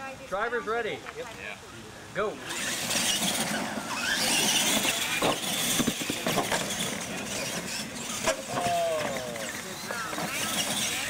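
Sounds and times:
rc truck motors whining: 2.4s - 11.0s
trucks knocking over bumps: 2.5s - 11.0s.

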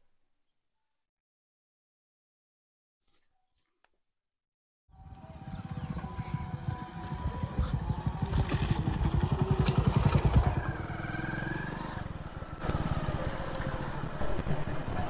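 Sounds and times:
motorcycle engine passing: 5.0s - 15.0s.

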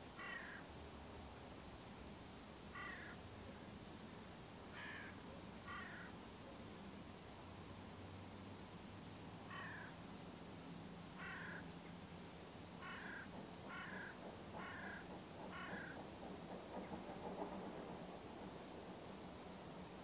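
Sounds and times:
crow cawing: 0.2s - 0.6s, 2.8s - 3.2s, 4.7s - 6.2s, 9.5s - 10.0s, 11.2s - 11.7s, 12.8s - 16.0s.

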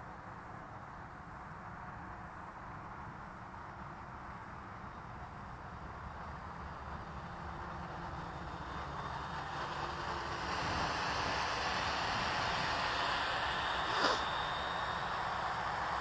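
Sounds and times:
drone propellers whirring: 5.4s - 16.0s
wind rumble on microphone: 9.8s - 15.9s.

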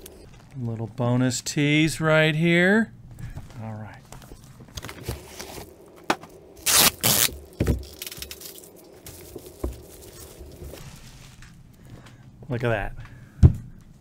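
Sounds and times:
cardboard and plastic wrap rustling: 3.5s - 11.7s.

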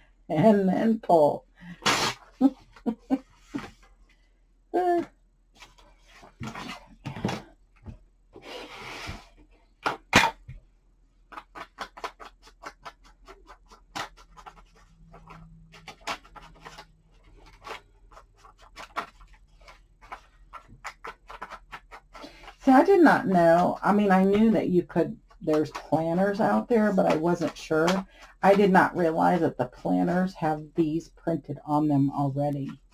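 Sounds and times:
paper rustling: 11.3s - 22.6s.

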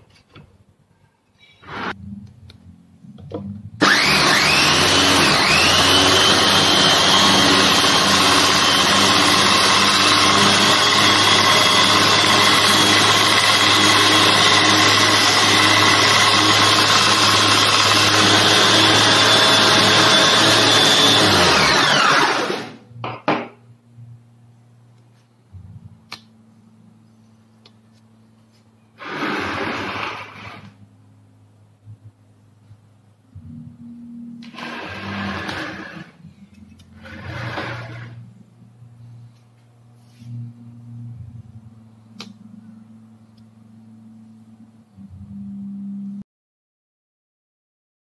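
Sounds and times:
belt sander motor whine: 3.8s - 22.8s.

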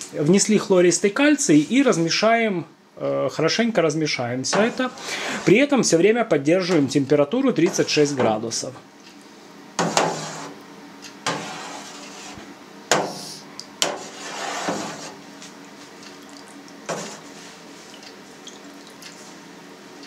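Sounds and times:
liquid swishing: 16.0s - 19.4s.

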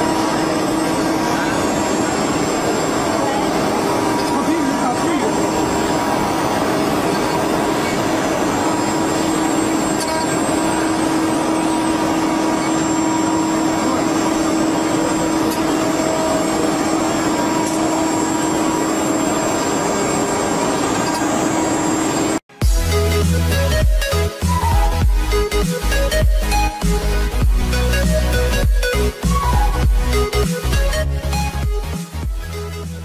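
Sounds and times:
cnc machine motor hum and whine: 0.0s - 22.4s
wood cutting noise: 0.0s - 32.2s.

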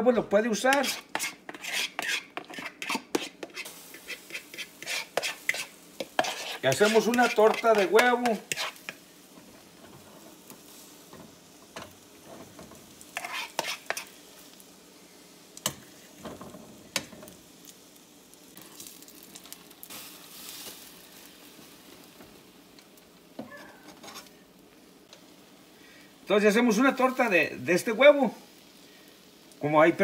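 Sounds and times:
batter sizzling in oil: 0.0s - 30.0s.

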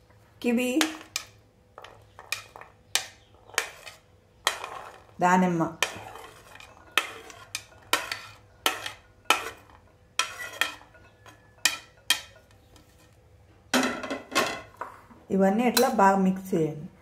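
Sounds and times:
metal spoon scraping ceramic plate: 0.8s - 13.2s.

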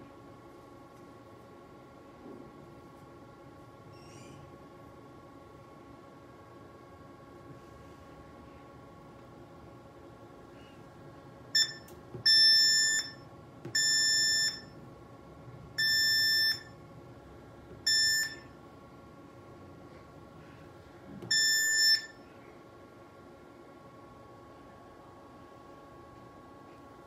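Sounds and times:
high electronic beeps: 11.6s - 13.2s, 13.8s - 14.7s.

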